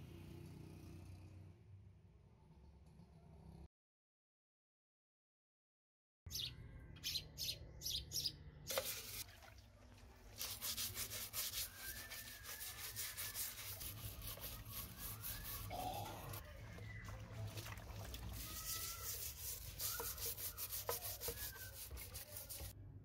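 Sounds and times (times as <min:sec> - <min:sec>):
brush scrubbing metal in soapy water: 0:08.7 - 0:09.4, 0:10.2 - 0:22.8.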